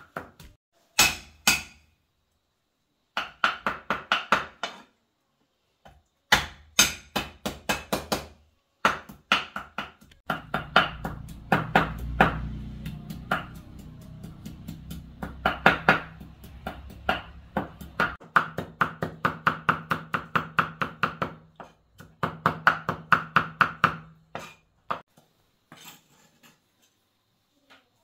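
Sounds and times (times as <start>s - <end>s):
cleaver chopping on wooden block: 1.0s - 1.8s, 6.3s - 25.0s.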